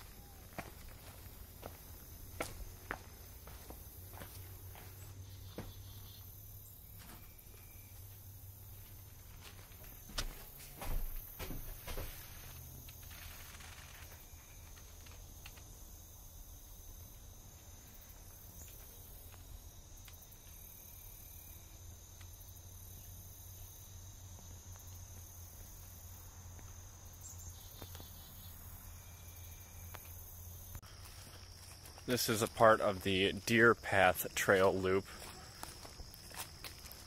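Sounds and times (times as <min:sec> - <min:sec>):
insect chorus trilling: 0:00.0 - 0:37.0.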